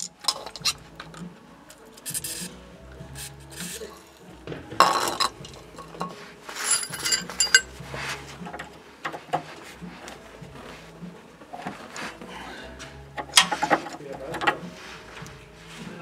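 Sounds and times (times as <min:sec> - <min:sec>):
metal tools clinking and scraping: 0:00.0 - 0:02.5, 0:04.8 - 0:10.2, 0:13.2 - 0:15.1.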